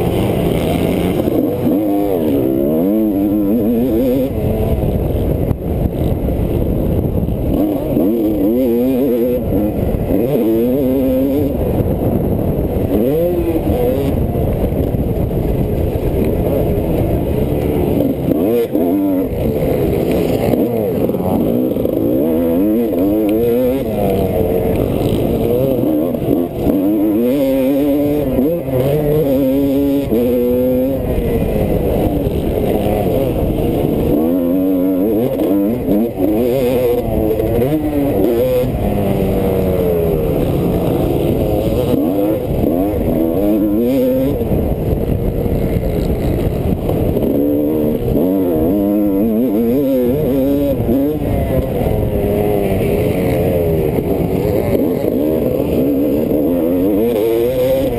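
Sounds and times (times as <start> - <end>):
dirt bike engine revving: 0.0 - 57.9.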